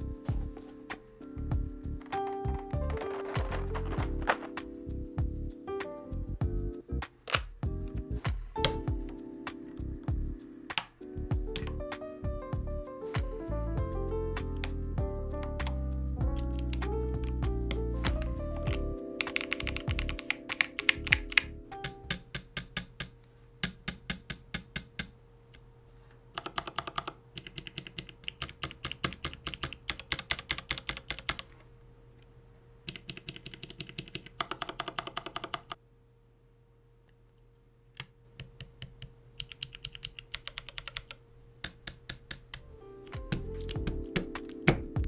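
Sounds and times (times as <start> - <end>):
background music: 0.0 - 22.3, 42.6 - 45.0
mechanical keyboard typing: 2.0 - 4.7, 8.4 - 9.2, 10.7 - 11.8, 15.4 - 25.1, 26.4 - 31.5, 32.9 - 35.8, 38.4 - 45.0.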